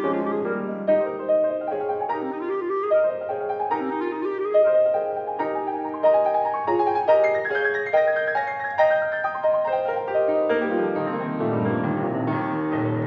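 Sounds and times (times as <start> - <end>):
grand piano playing: 0.0 - 13.0.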